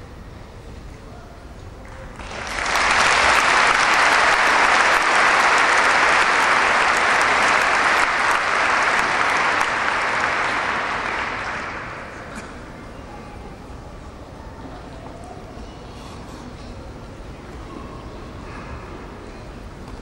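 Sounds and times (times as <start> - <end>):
large audience applauding: 2.0 - 12.4.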